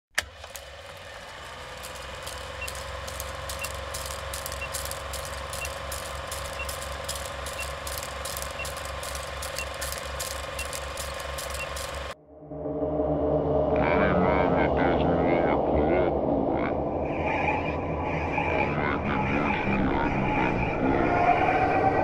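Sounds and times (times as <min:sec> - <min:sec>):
film projector clattering: 0:00.1 - 0:12.2
crackling clicks: 0:01.5 - 0:12.2
short high beeps: 0:05.5 - 0:11.9.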